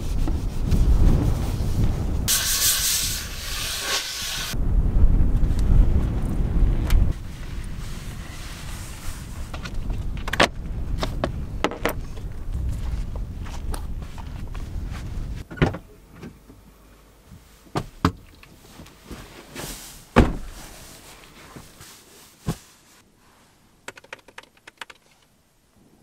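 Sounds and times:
car doors knocking and thumping: 20.2s - 20.5s
heavy thud: 20.2s - 20.6s
laptop keyboard clicks: 23.9s - 25.2s.

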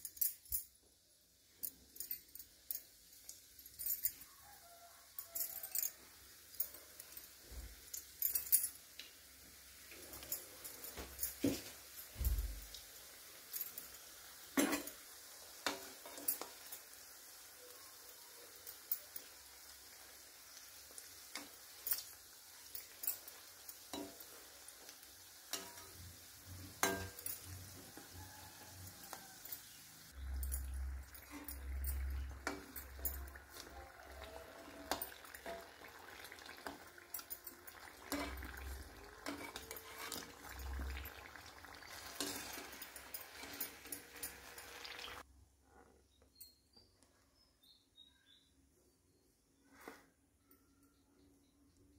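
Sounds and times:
dumplings deep-frying in oil: 0.8s - 45.3s
metal spoon scraping pan: 25.5s - 28.2s, 30.7s - 45.2s.

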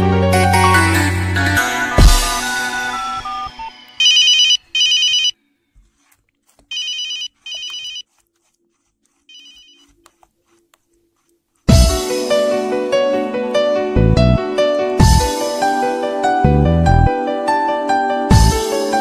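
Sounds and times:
background music: 0.0s - 4.1s, 11.7s - 19.0s
telephone ringing: 2.7s - 5.4s, 6.7s - 8.1s, 9.3s - 9.9s.

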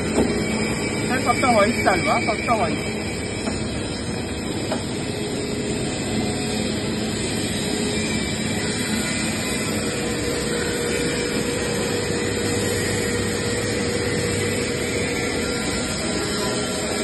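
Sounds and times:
motor whine: 0.0s - 17.0s.

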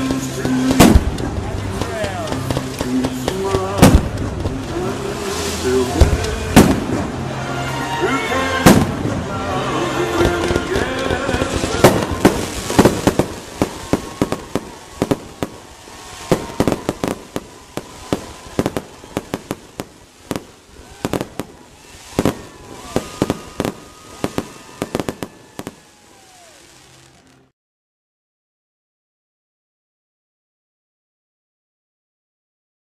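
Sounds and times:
fireworks bangs: 0.0s - 7.8s, 8.4s - 27.5s
faint falling whistles: 20.3s - 27.3s.

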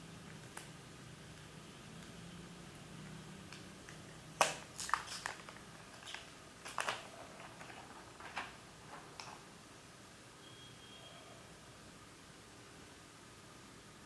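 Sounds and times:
plastic film crinkling: 4.4s - 9.4s.

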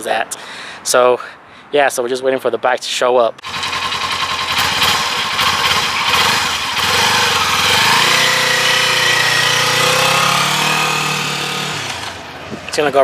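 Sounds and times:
motorcycle engine revving: 3.4s - 12.7s.

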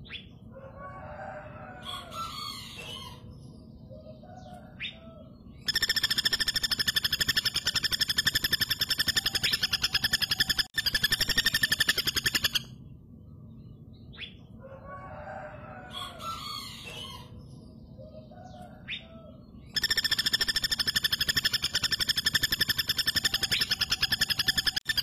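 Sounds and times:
woodpecker rattling trill: 5.6s - 12.8s, 19.7s - 25.0s.

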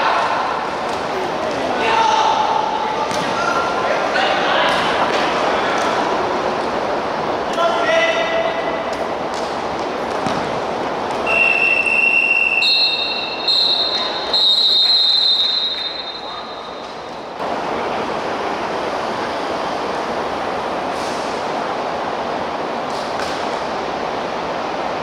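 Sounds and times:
hall noise: 0.0s - 25.0s
referee's whistle blasts: 11.2s - 17.0s.

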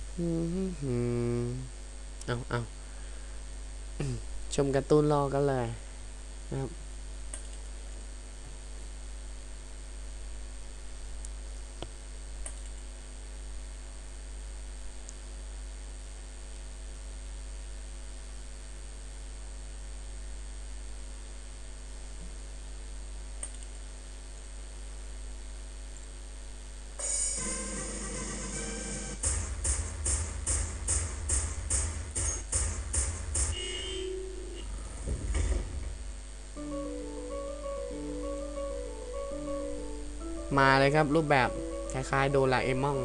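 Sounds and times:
electrical mains hum: 0.0s - 43.0s
faint clicks: 7.3s - 7.6s, 11.2s - 12.8s, 23.4s - 23.8s
music: 27.0s - 34.6s, 36.6s - 43.0s.

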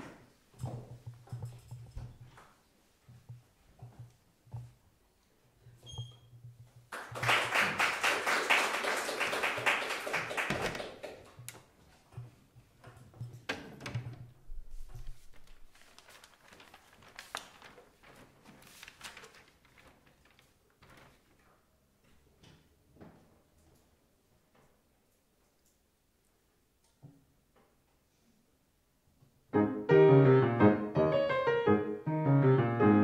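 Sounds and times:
audience applause: 6.9s - 11.2s.

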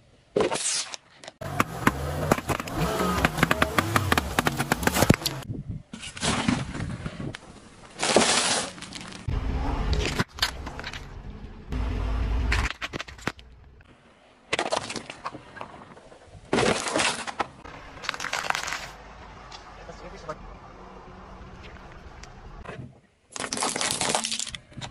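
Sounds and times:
tyre crushing objects: 1.4s - 5.4s
car rolling rumble: 1.4s - 5.5s, 8.9s - 13.9s, 17.6s - 22.7s.

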